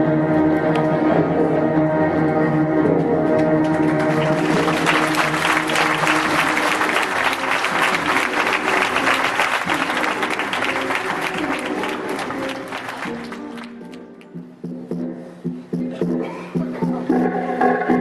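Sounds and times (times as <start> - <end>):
music: 0.0 - 18.0
audience applauding: 3.6 - 14.2.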